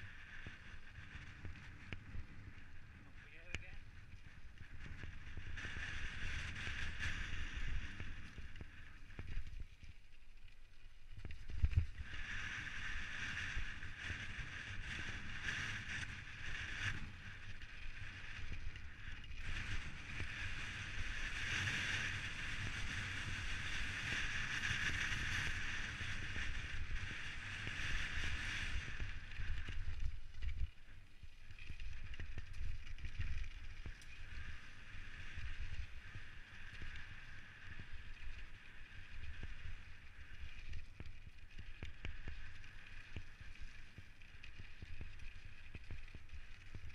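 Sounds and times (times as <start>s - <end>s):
wind on microphone: 0.0s - 9.7s
bike tyres on gravel: 0.0s - 46.9s
bike rattling over bumps: 0.5s - 46.9s.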